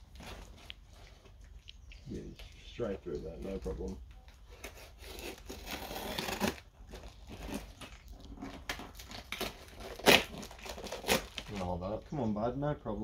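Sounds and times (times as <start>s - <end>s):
wrapping crinkling and rustling: 0.0s - 12.1s
knife cutting packaging: 4.4s - 11.7s.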